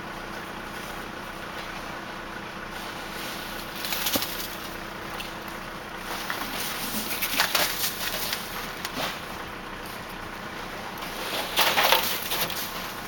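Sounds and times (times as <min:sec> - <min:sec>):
snow brush scraping snow: 0:11.0 - 0:13.0.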